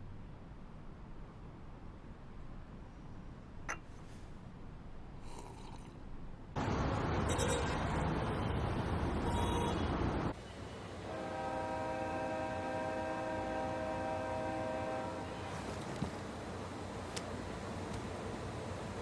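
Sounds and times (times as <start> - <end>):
street traffic noise: 6.2 - 19.0.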